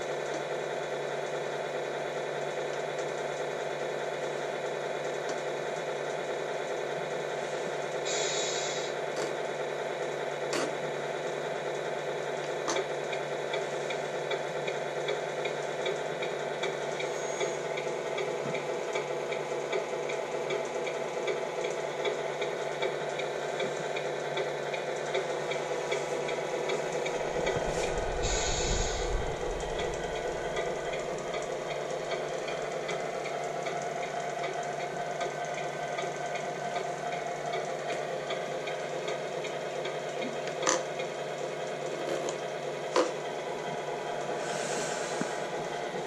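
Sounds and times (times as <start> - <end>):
simulated diesel engine idling: 0.0 - 46.0
low rumble: 27.0 - 32.5.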